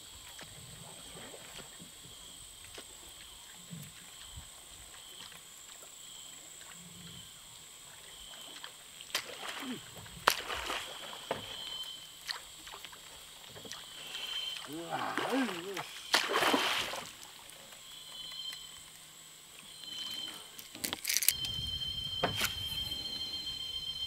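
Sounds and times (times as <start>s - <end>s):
high-pitched insect drone: 11.0s - 12.2s, 13.8s - 16.2s, 19.6s - 24.0s.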